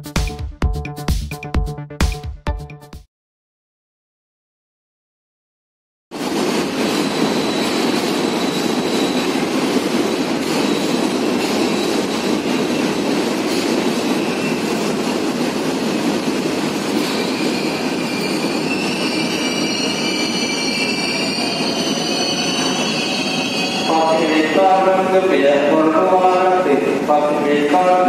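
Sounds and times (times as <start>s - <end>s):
wheels squealing on track: 17.0s - 24.6s.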